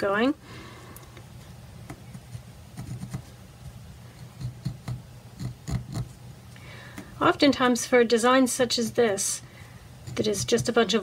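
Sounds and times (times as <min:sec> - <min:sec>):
pencil scratching on fabric: 0:02.2 - 0:03.3.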